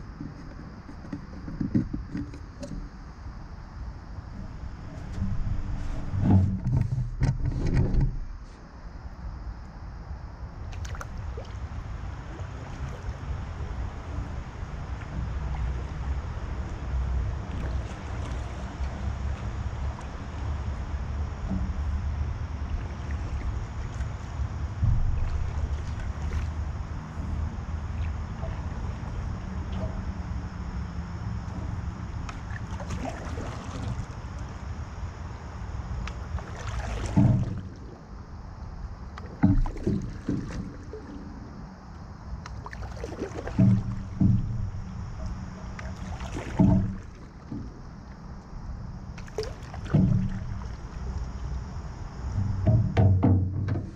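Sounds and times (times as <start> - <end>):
water lapping against canoe hull: 0.0 - 8.7, 10.5 - 53.9
steady low rumble: 1.5 - 53.9
thump: 24.8 - 25.5, 37.1 - 37.6, 39.4 - 40.7, 43.6 - 44.7, 46.6 - 47.7, 49.9 - 50.4, 52.4 - 53.9.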